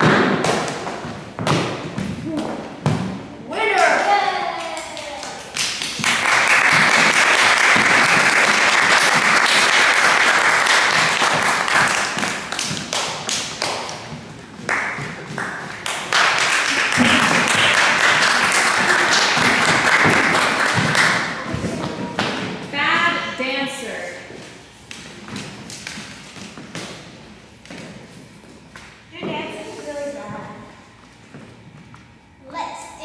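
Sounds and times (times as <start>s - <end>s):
audience applauding: 4.6s - 13.8s, 14.7s - 21.5s.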